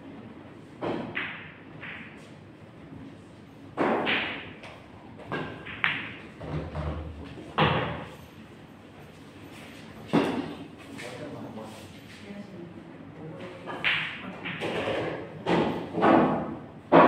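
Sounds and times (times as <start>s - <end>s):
cue striking ball: 3.8s - 8.1s
pool balls clacking: 3.8s - 8.2s.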